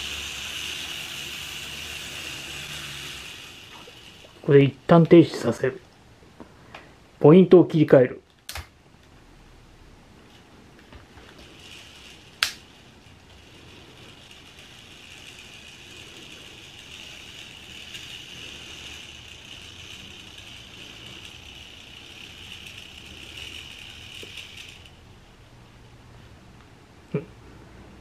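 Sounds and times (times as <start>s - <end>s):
electric turnout snapping: 0.0s - 5.8s, 10.8s - 25.1s
model train motor whirring: 0.0s - 5.8s, 10.8s - 25.5s.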